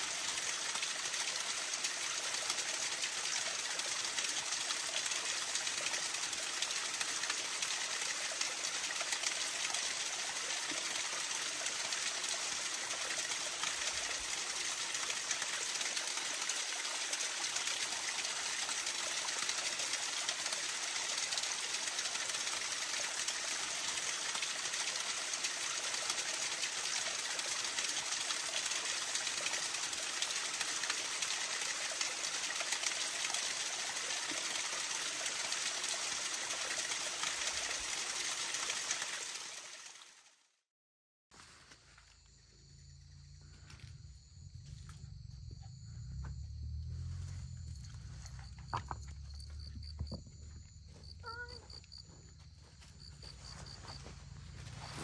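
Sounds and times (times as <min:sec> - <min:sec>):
rushing flowing water: 0:00.0 - 0:40.1.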